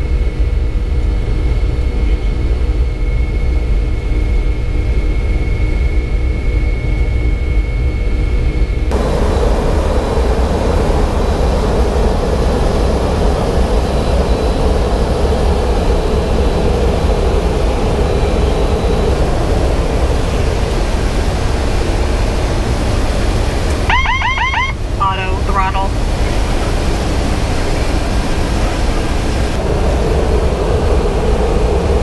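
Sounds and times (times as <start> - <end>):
aircraft cabin engine rush: 0.0 - 32.0
deep rumble: 0.0 - 32.0.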